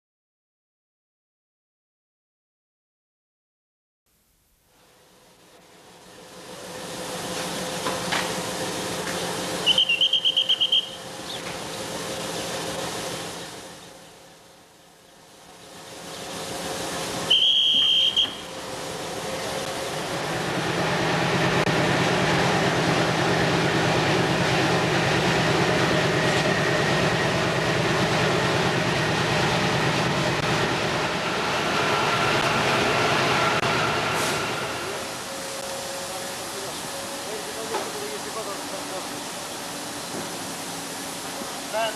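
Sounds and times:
diesel locomotive engine throbbing: 0:05.2 - 0:41.9
shrill whistle: 0:09.6 - 0:11.0, 0:17.3 - 0:18.5.

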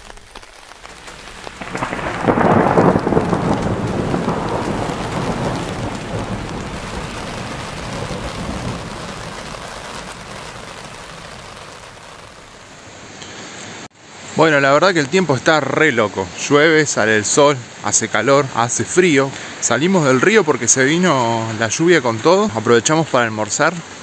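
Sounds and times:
thunder rumbling: 0:00.0 - 0:12.8
steady rain: 0:00.0 - 0:24.0.

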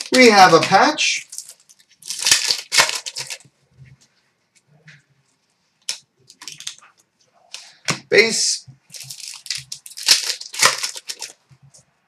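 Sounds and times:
foil wrapper crinkling: 0:00.0 - 0:03.5, 0:05.9 - 0:06.8, 0:08.9 - 0:11.4.

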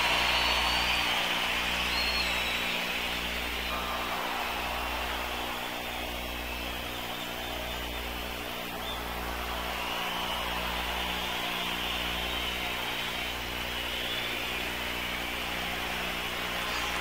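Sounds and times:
crowd noise: 0:00.0 - 0:17.0.

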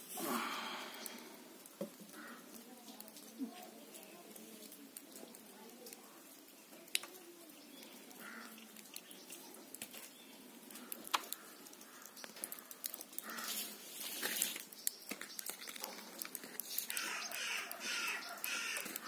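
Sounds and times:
bird calls: 0:14.7 - 0:19.0.

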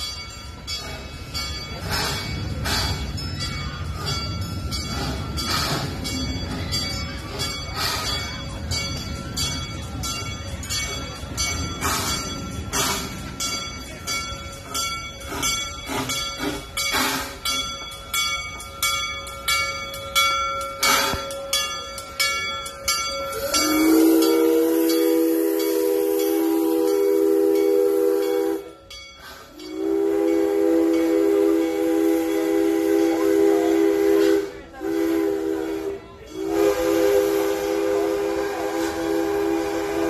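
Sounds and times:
locomotive bell ringing: 0:00.0 - 0:40.0
steam locomotive arriving: 0:00.0 - 0:40.0
locomotive whistle chord: 0:20.0 - 0:28.9, 0:29.5 - 0:40.0.

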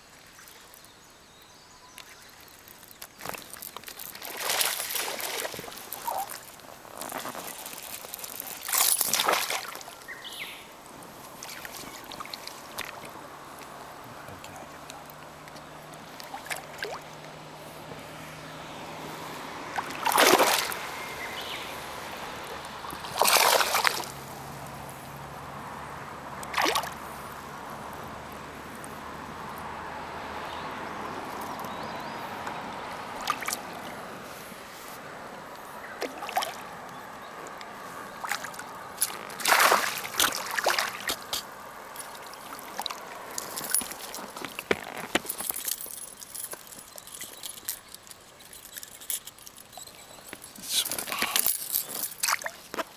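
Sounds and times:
fish splashing at water surface: 0:03.3 - 0:10.0, 0:19.2 - 0:24.4, 0:26.4 - 0:27.2, 0:33.1 - 0:34.0, 0:38.2 - 0:44.4.

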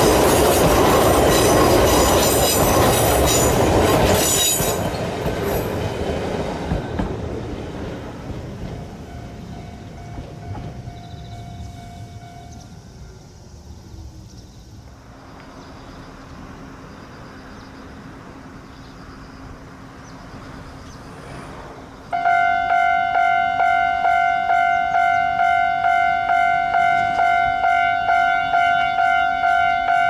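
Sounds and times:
level crossing warning bell: 0:08.9 - 0:12.7, 0:22.1 - 0:30.0.

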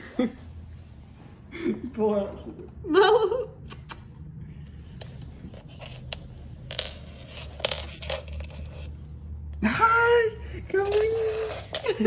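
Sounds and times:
clicks and scrapes on wooden floor: 0:04.9 - 0:09.1.

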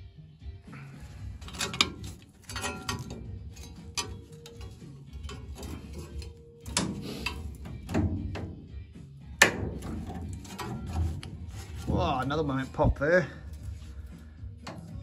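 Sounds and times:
metallic knocks and cracks: 0:01.4 - 0:11.4.

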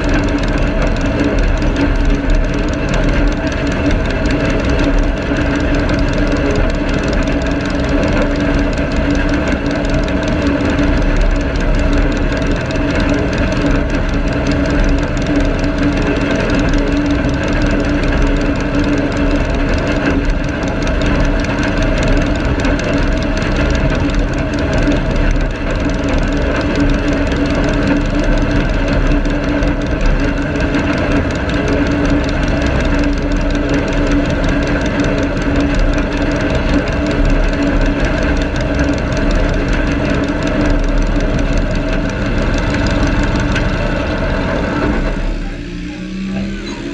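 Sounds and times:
garden tractor engine running: 0:00.0 - 0:46.9.

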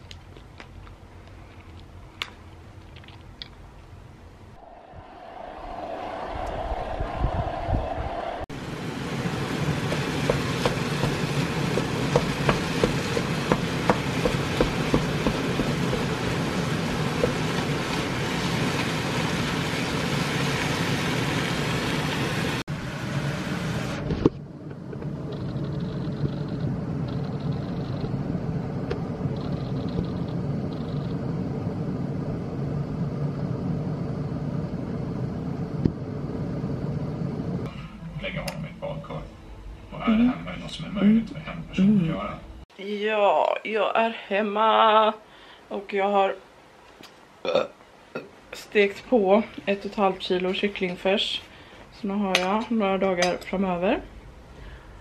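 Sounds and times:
wooden spatula knocking pan: 0:09.9 - 0:16.2.

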